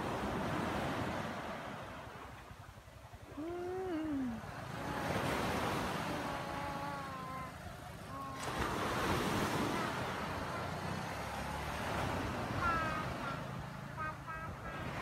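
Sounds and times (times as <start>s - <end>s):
sea waves breaking on a beach: 0.0s - 15.0s
faint wavering calls: 3.3s - 10.9s, 12.2s - 15.0s.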